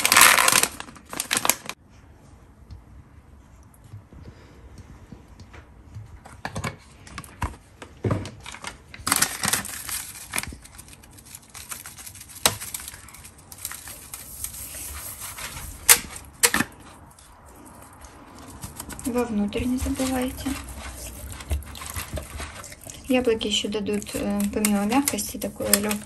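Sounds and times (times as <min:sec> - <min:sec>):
paper packet crinkling: 0:00.0 - 0:01.8, 0:08.4 - 0:26.0.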